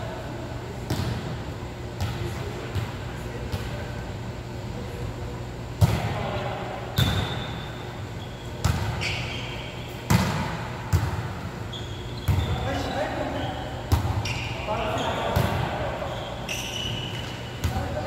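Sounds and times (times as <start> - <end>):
shoe squeaks: 7.0 - 10.1, 11.6 - 15.3, 16.0 - 17.6
volleyball smacks: 10.1 - 11.3.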